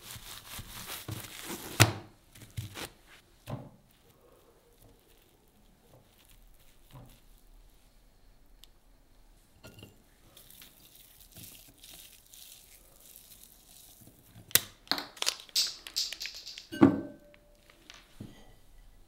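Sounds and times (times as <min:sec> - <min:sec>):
plastic pouch crinkling: 0:00.0 - 0:01.8, 0:04.7 - 0:07.6, 0:10.3 - 0:16.7
soft tearing by hand: 0:03.9 - 0:07.6.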